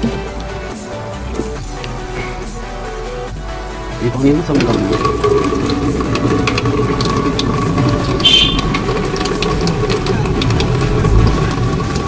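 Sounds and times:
pump humming: 4.5s - 12.0s
water spattering into steel sink: 4.5s - 12.0s.

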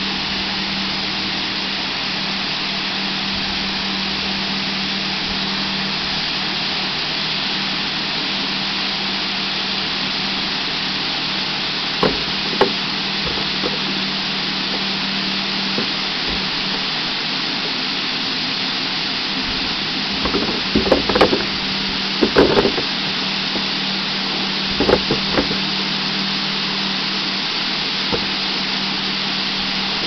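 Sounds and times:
machine hum: 0.0s - 30.0s
water spraying from nozzles: 0.0s - 30.0s
knocks and clatter: 12.0s - 13.9s, 20.2s - 21.6s, 22.2s - 22.9s, 24.8s - 25.6s.

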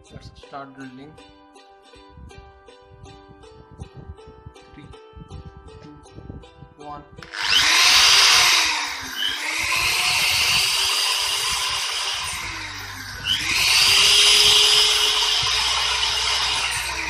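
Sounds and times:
electric drill boring into board: 7.2s - 17.0s.

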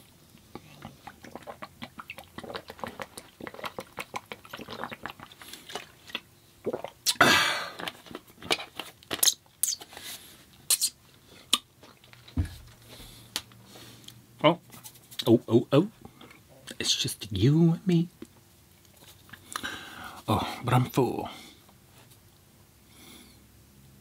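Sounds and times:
chewing and biting food: 0.0s - 7.0s, 7.8s - 9.5s.

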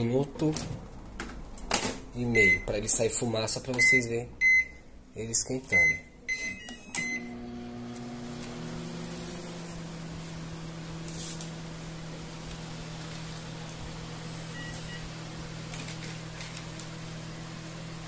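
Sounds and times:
microwave electrical hum: 0.0s - 18.0s
microwave keypad beep: 2.3s - 2.7s, 3.8s - 4.8s, 5.8s - 7.4s, 14.5s - 15.1s.

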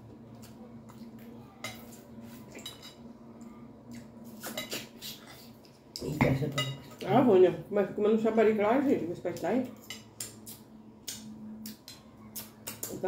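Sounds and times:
low steady hum: 0.0s - 13.0s
cutlery clinking on glass plates: 6.0s - 7.0s.

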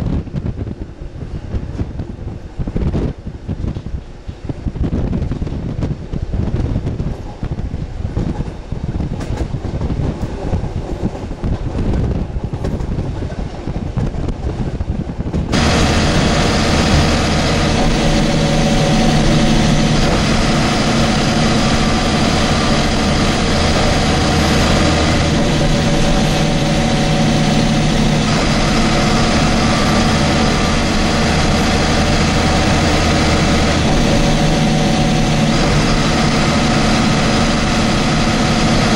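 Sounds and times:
wind buffeting microphone: 0.0s - 38.9s
bus diesel engine running: 15.5s - 38.9s.

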